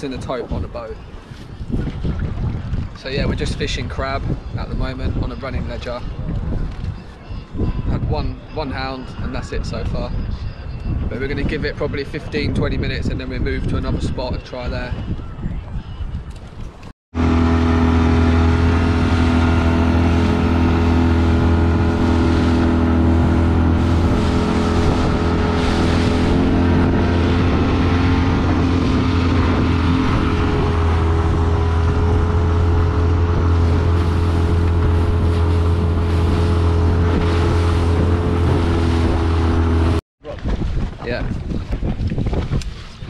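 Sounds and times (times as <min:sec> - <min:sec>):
outboard motor running: 0:17.1 - 0:40.0.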